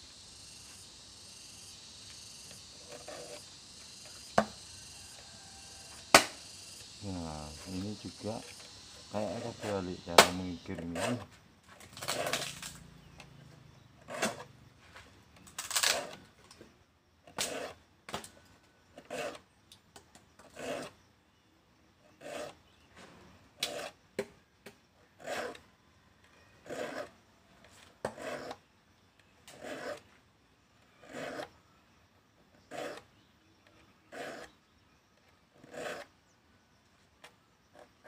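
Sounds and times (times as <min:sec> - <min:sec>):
file rasping on saw teeth: 0:02.4 - 0:11.3, 0:14.1 - 0:14.5, 0:17.4 - 0:17.8, 0:19.0 - 0:19.4, 0:20.4 - 0:21.0, 0:22.1 - 0:22.7, 0:23.6 - 0:24.0, 0:25.2 - 0:25.7, 0:26.6 - 0:27.2, 0:28.0 - 0:28.6, 0:29.5 - 0:30.1, 0:31.0 - 0:31.6, 0:32.6 - 0:33.1, 0:34.1 - 0:34.6, 0:35.6 - 0:36.1.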